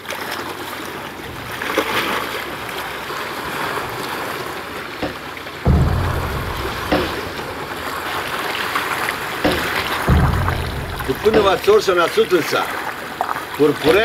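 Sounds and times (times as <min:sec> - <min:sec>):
water splashing along hull: 0:00.0 - 0:14.0
short sharp knock: 0:05.0 - 0:08.3, 0:09.4 - 0:12.0
low rumble: 0:05.1 - 0:08.6, 0:09.5 - 0:12.1.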